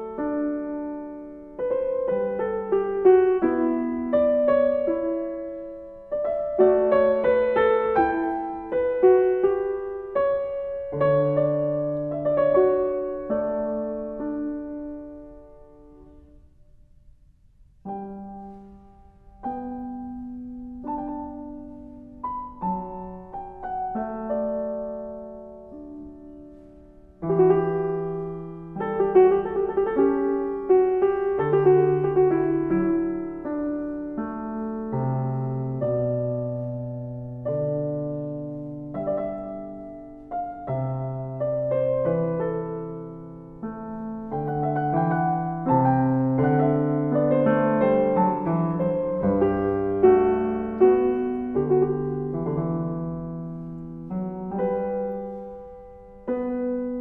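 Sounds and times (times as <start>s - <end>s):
solo piano music: 0.0s - 57.0s.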